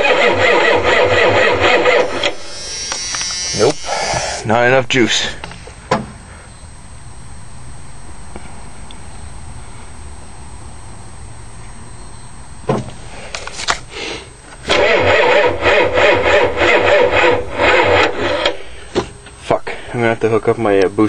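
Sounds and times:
starter slowly cranking engine: 0.0 - 4.5, 14.4 - 19.4.

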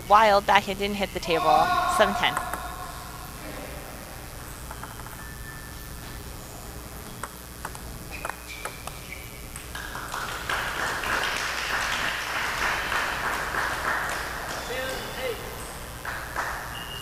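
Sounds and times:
table tennis ball clicking: 2.1 - 2.7, 4.7 - 5.2, 7.0 - 10.1
spectators applauding: 9.7 - 17.0.

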